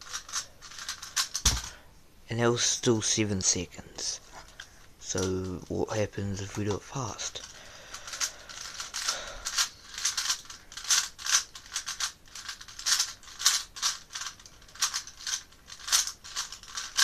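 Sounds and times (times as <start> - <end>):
plastic puzzle cube clicking: 0.0 - 1.7, 7.4 - 17.0.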